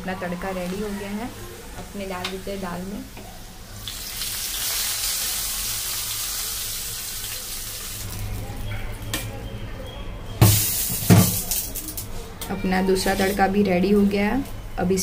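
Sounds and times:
hot oil sizzling: 0.2 - 8.4, 10.4 - 12.1.

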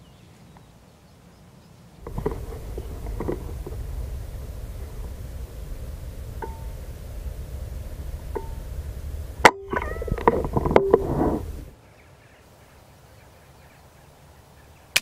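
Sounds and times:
wind rumbling on microphone: 2.0 - 12.3.

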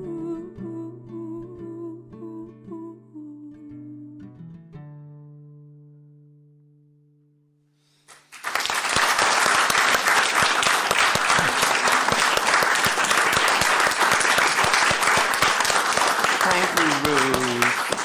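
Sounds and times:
audience applause: 8.1 - 18.0.

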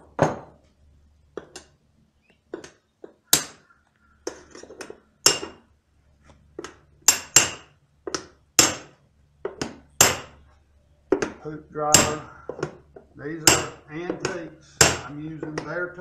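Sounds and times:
hammer striking metal: 5.2 - 5.6, 7.0 - 9.0, 9.6 - 10.4, 11.2 - 12.8, 13.4 - 15.7.

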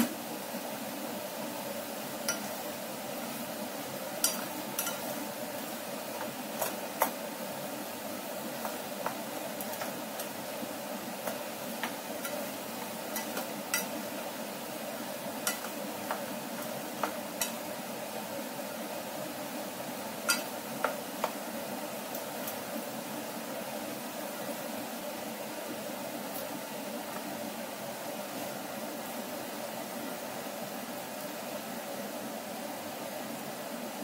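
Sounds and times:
steady hiss: 0.0 - 34.0
spatula tapping and scraping a pot: 4.2 - 5.1, 6.1 - 7.2, 8.6 - 10.4, 11.2 - 14.3, 15.4 - 17.6, 20.2 - 21.4.

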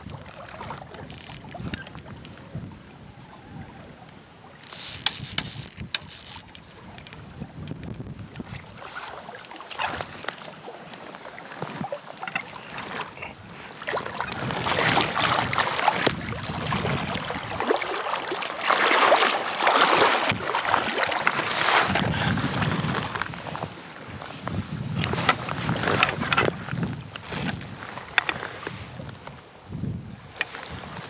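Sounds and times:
fishing reel clicks: 1.0 - 2.1, 4.6 - 8.5, 12.1 - 13.1
fish splashing in water: 8.4 - 23.1.

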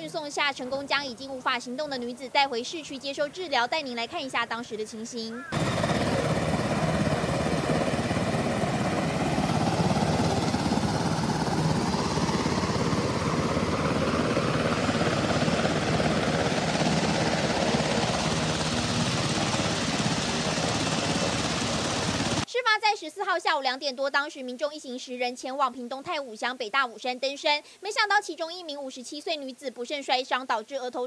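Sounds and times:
helicopter turbines and rotor: 0.0 - 22.5.

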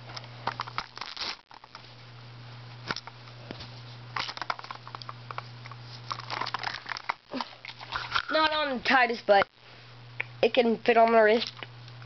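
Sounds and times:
low steady hum: 0.0 - 12.0
plastic toy clicks and rustles: 4.2 - 5.4, 6.1 - 8.4.

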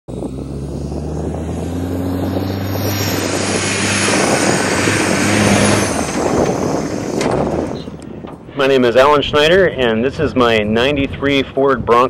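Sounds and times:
diesel truck engine under load: 0.1 - 9.7.

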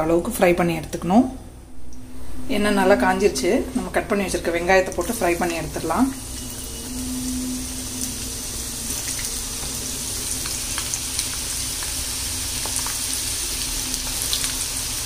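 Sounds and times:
onions sizzling in hot oil: 4.9 - 15.0.

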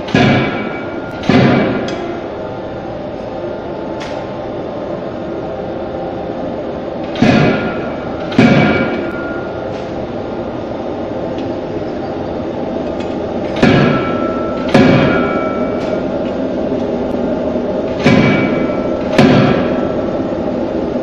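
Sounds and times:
forging hammer striking steel: 0.0 - 2.3, 7.0 - 10.0, 13.2 - 17.2, 17.8 - 21.0
factory machinery drone: 0.0 - 21.0.

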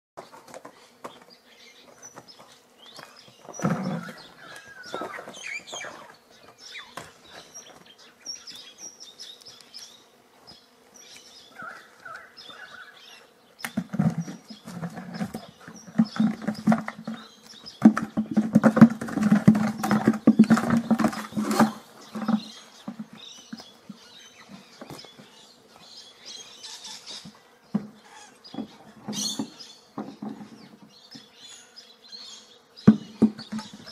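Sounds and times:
birds chirping faintly: 0.2 - 33.9
plastic pot knocking and scraping: 2.1 - 7.8, 13.6 - 25.4, 27.7 - 31.3, 32.9 - 33.9.

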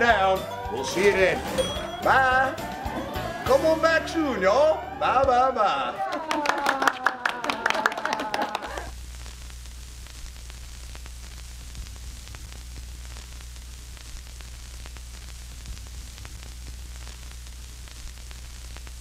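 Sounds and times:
static crackles: 8.6 - 19.0
static hiss: 8.8 - 19.0.

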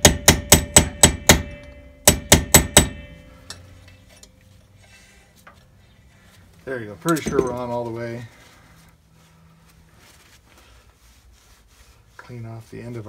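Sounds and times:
hammer striking metal cap: 0.0 - 4.3.

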